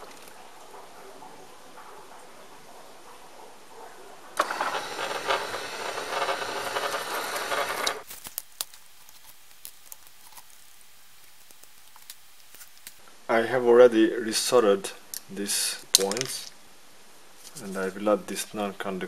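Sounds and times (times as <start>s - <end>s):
electric motor running: 4.4s - 8.0s.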